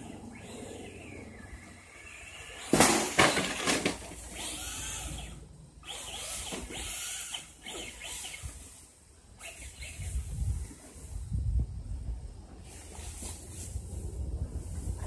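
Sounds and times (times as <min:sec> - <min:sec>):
electric motor whining: 0:00.0 - 0:11.1.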